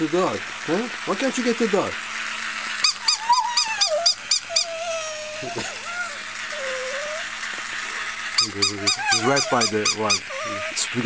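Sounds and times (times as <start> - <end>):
dog yipping: 2.8 - 7.2, 8.4 - 10.8
dog whining: 2.8 - 11.0.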